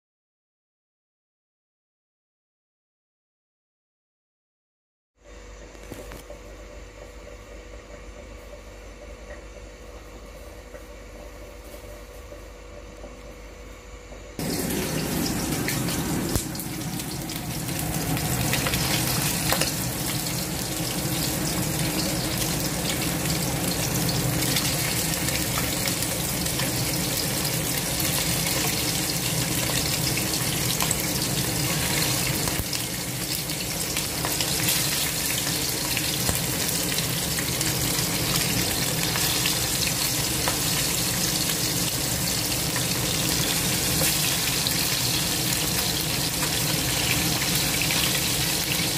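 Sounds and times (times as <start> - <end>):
fish frying in hot oil: 14.4 - 48.9.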